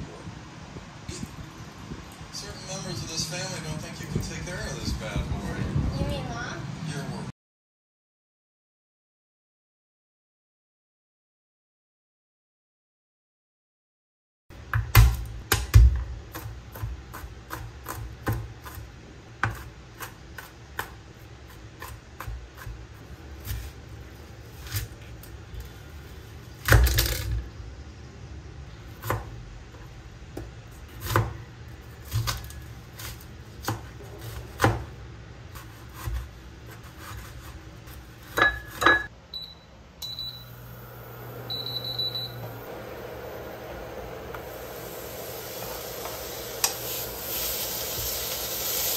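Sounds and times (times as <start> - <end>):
cooktop hiss and hum: 14.5 - 48.9
knife chopping on cutting board: 14.8 - 22.8, 30.4 - 31.4, 32.0 - 34.9, 35.6 - 39.0
cooktop electronic beeps: 38.9 - 40.8, 41.4 - 42.6.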